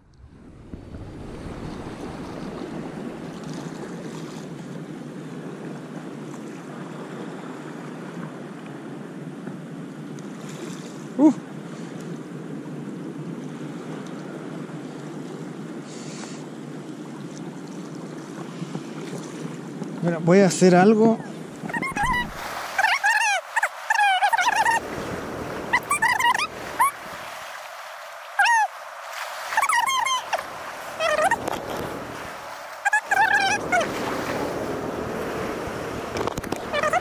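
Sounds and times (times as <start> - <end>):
sea surf breaking: 0.0 - 4.6, 21.4 - 37.0
short pitched squeak: 21.6 - 22.9, 25.8 - 27.0.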